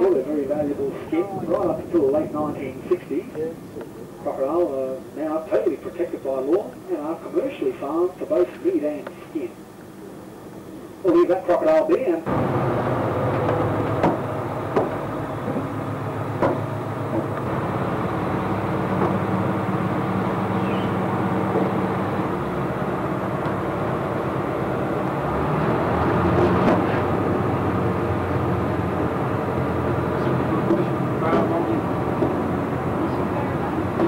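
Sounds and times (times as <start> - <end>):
boat engine humming: 0.0 - 34.0
light knocks: 13.4 - 15.7, 16.4 - 17.3.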